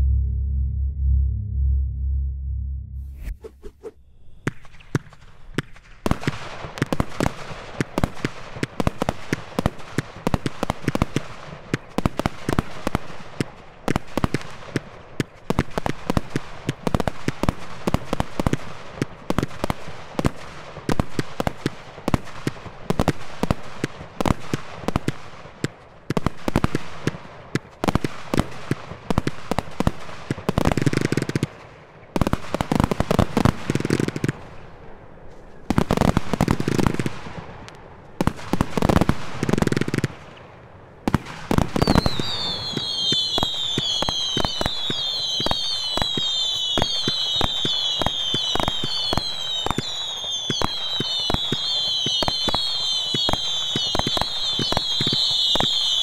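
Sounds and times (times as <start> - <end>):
firework cake firing shots: 41.1 - 56.0.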